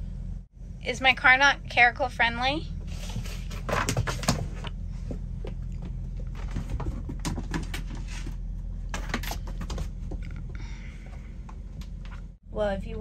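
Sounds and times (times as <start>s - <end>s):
steady low hum: 0.0s - 13.0s
paws scrabbling on vinyl floor: 3.0s - 8.4s.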